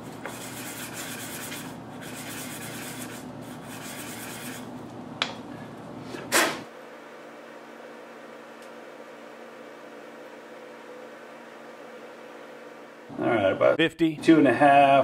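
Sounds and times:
gritty scraping on abrasive paper: 0.3 - 4.7.

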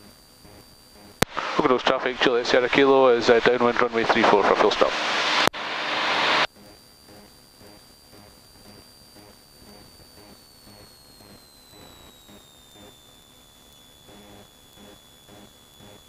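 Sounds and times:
intercom hiss: 0.0 - 10.4
thin high whine: 0.0 - 16.0.

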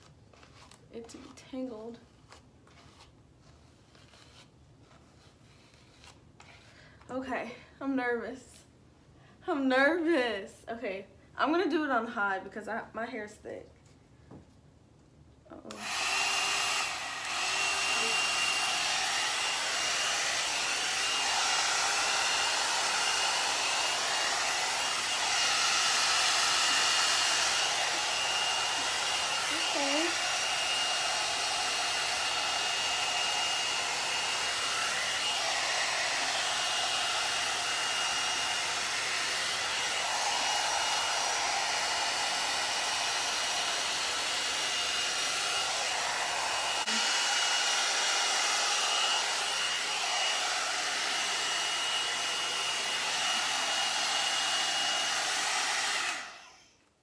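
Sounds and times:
hot-air dryer brush running: 15.6 - 56.9.

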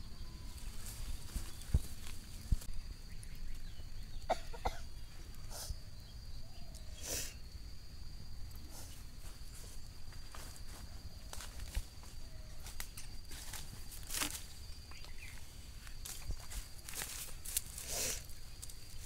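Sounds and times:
faint high whine: 0.0 - 19.0
dry leaves rustling: 0.5 - 2.7, 9.2 - 19.0.

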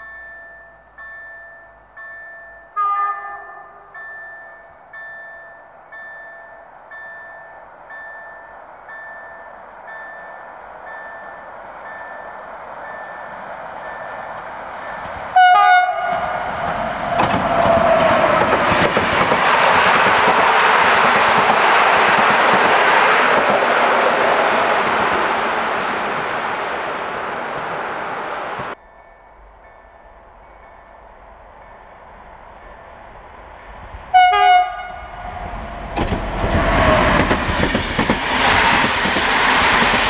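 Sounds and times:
level-crossing warning bell: 0.0 - 18.4, 28.7 - 35.5
train passing: 0.0 - 40.0
locomotive horn blast: 2.8 - 4.0, 15.4 - 18.4, 34.1 - 35.5.

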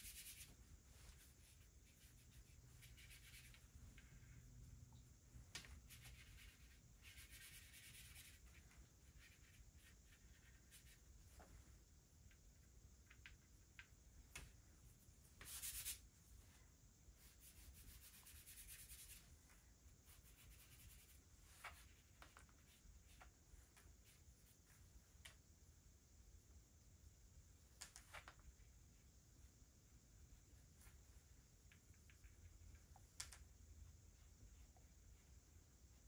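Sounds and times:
pencil sketching strokes: 0.0 - 4.4, 5.7 - 11.4, 15.4 - 16.5, 17.2 - 25.0.

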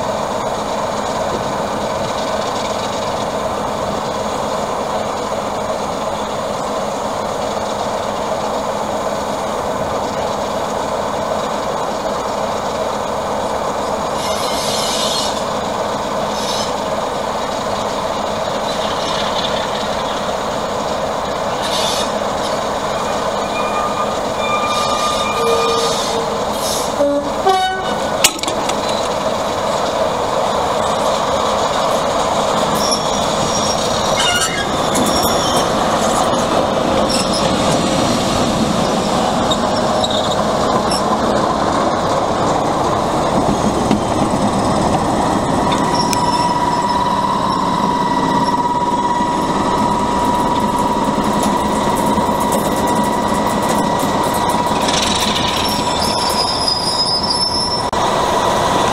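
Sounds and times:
diesel locomotive engines running: 0.0 - 58.9
locomotive horn blast: 23.0 - 28.2.

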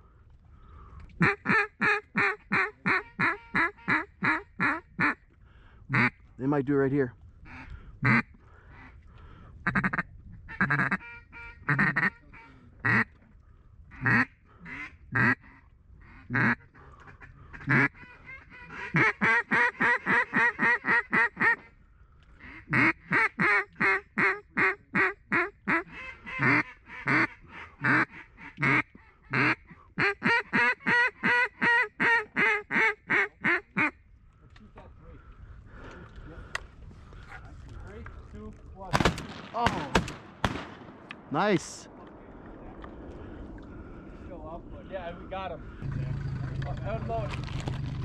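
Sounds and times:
duck call quacks: 1.2 - 5.2, 5.9 - 6.2, 7.5 - 9.0, 9.6 - 13.2, 13.9 - 21.7, 22.4 - 34.0.

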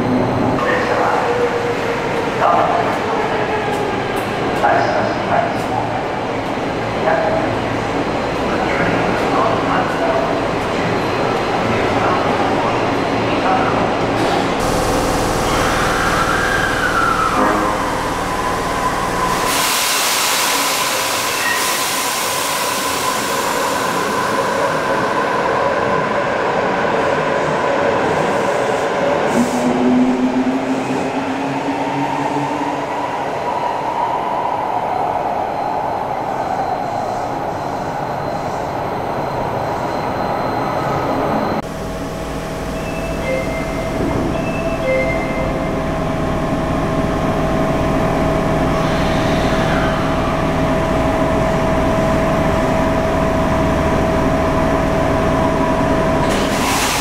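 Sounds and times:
steady hum inside train car: 0.0 - 26.8, 36.1 - 57.0
subway train rumbling: 0.0 - 57.0
short high beeps: 42.8 - 45.6.

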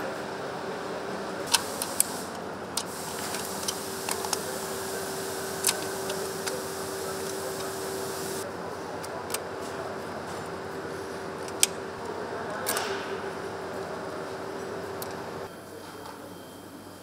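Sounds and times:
assembly hall hum: 0.0 - 17.0
clicks of parts and tools: 1.5 - 4.5, 5.5 - 7.8.

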